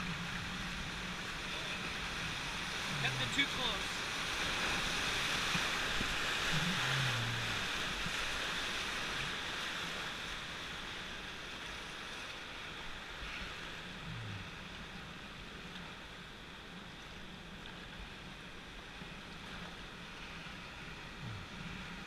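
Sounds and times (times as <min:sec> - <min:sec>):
whitewater rushing and splashing: 0:00.0 - 0:17.2.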